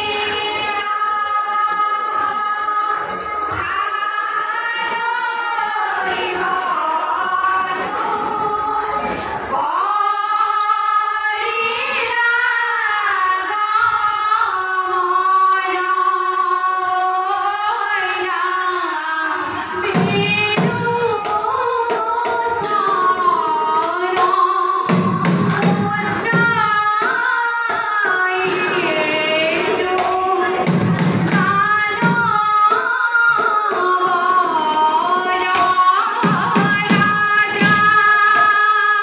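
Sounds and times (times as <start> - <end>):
women singing a devotional chant: 0.0 - 39.0
percussion beating: 19.5 - 39.0.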